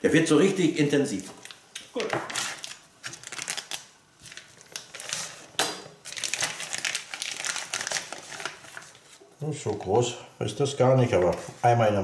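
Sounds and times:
plastic bag crinkling: 1.3 - 9.8.

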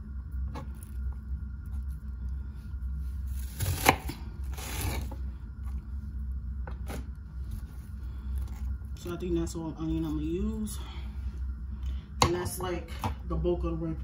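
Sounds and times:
steady low hum: 0.0 - 14.0
knife cutting onion on board: 3.3 - 5.2.

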